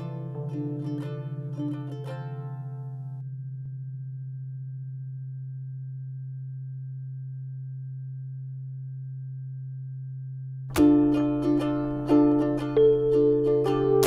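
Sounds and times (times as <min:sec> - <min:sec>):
low electronic drone tone: 0:03.2 - 0:14.0.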